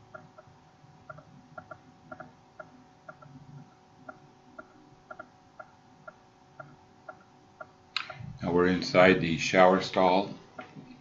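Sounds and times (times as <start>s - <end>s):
faint regular ticking: 0.0s - 8.2s.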